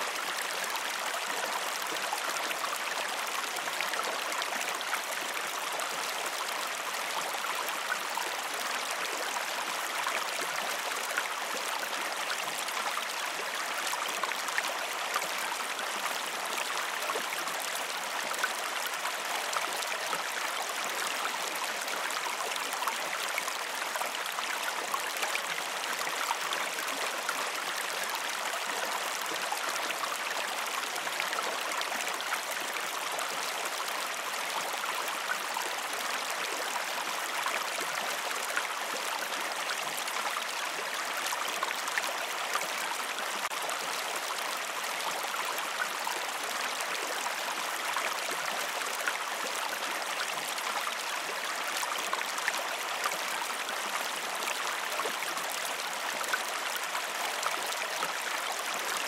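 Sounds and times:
creek water babbling: 0.0s - 59.0s.

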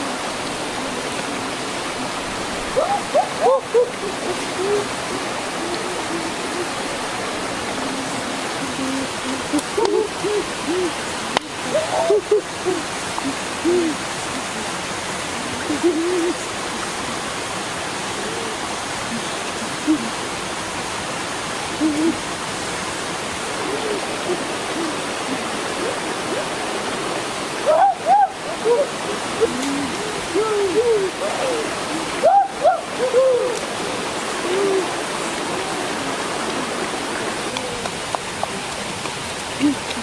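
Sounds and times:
waterfall and stream rushing: 0.0s - 40.0s
hooting calls: 2.7s - 7.0s, 23.3s - 37.9s.

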